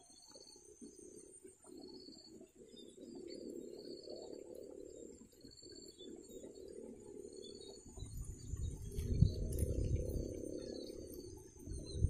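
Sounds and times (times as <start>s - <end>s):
low rumble: 8.0s - 12.0s.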